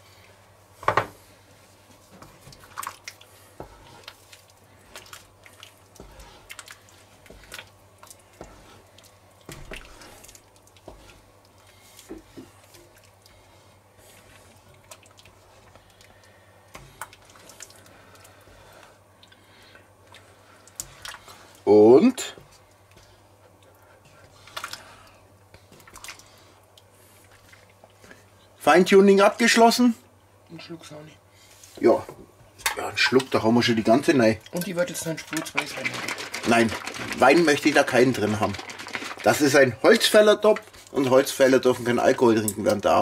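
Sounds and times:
faint steady hum: 0.0 - 43.0
stew squelching while stirred: 1.3 - 28.6, 34.4 - 42.2.

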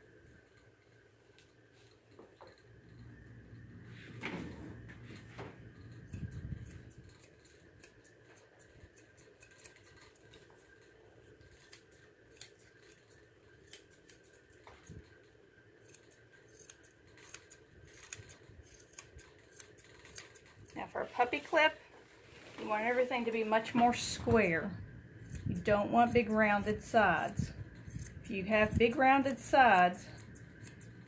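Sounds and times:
shears snipping hair: 5.2 - 21.8, 22.6 - 31.0
low muffled rustle: 21.0 - 24.6.

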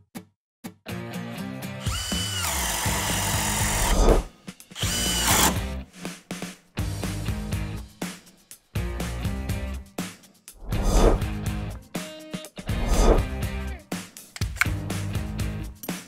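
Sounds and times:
background music with steady beat: 0.9 - 16.0
cordless drill whining: 1.8 - 4.2, 4.8 - 5.7.

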